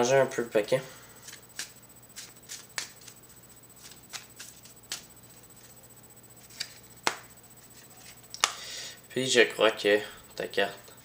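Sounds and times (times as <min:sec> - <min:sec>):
playing cards shuffled: 0:01.2 - 0:05.8, 0:06.4 - 0:08.6.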